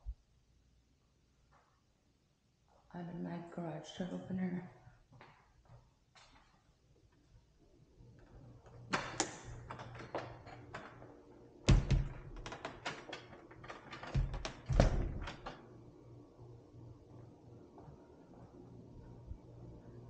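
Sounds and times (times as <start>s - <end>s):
faint steady hum: 0.0s - 20.0s
knocks and clicks: 11.7s - 15.6s.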